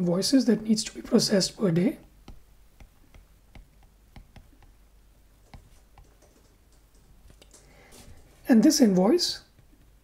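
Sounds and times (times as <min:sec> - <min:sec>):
low room hiss: 0:00.0 - 0:10.0
stylus tapping on tablet: 0:02.0 - 0:04.8, 0:05.4 - 0:07.7.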